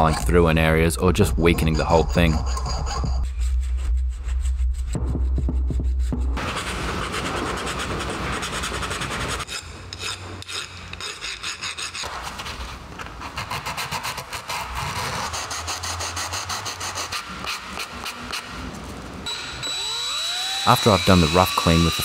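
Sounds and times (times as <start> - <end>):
hand file rasping on metal: 1.6 - 4.6
sanding block rubbing: 1.6 - 5.0, 6.0 - 12.1, 13.3 - 18.2.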